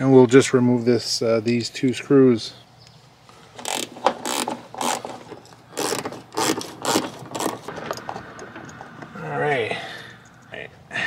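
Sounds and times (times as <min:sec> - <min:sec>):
hand ratchet clicking: 0:03.6 - 0:09.0.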